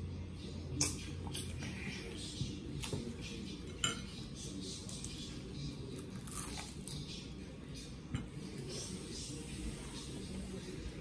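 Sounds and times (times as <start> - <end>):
chewing fried meat: 4.5 - 7.4.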